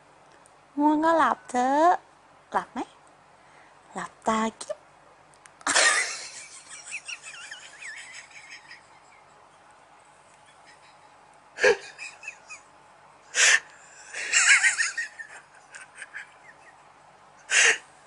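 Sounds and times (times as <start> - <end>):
person giggling: 5.7 - 9.6, 10.4 - 12.7.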